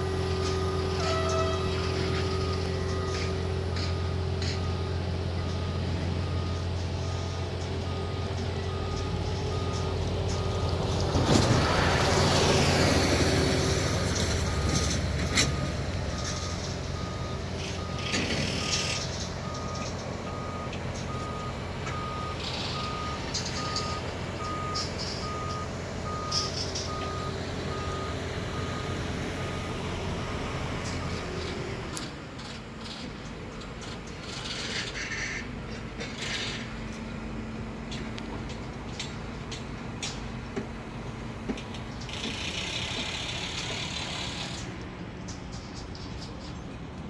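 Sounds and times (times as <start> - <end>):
diesel machinery drone: 0.0 - 47.0.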